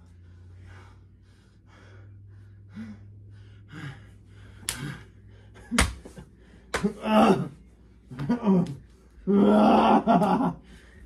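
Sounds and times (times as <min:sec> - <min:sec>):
person breathing hard: 0:00.0 - 0:07.0, 0:10.5 - 0:11.0
sharp slaps: 0:04.5 - 0:07.0.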